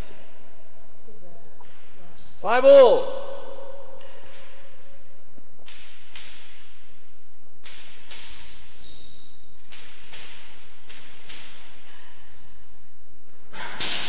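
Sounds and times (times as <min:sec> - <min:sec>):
ball striking rackets and walls: 0:05.6 - 0:12.8
shoes squeaking on floor: 0:08.2 - 0:12.8.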